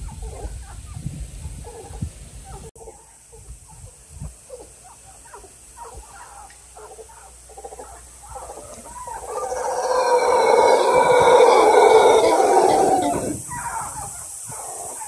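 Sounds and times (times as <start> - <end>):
howler monkeys howling: 6.2 - 15.0.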